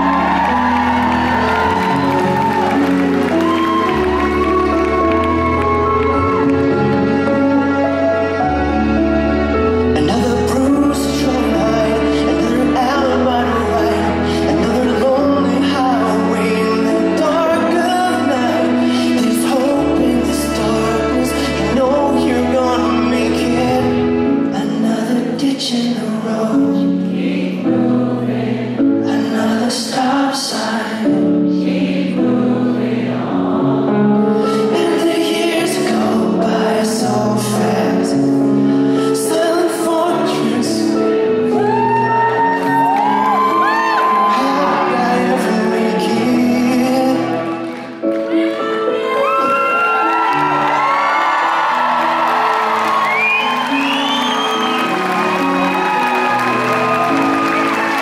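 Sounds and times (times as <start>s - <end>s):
bass: 0.0s - 27.0s
man singing into a microphone: 9.9s - 27.9s, 28.9s - 31.6s, 34.3s - 48.0s.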